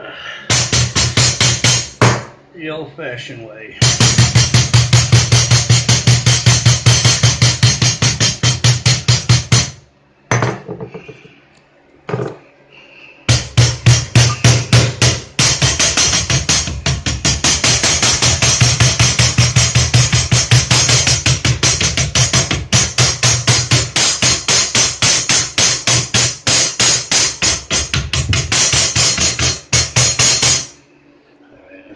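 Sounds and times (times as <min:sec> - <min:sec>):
music with fast drum beat: 0:00.5 - 0:02.0, 0:03.8 - 0:09.8, 0:13.3 - 0:30.7.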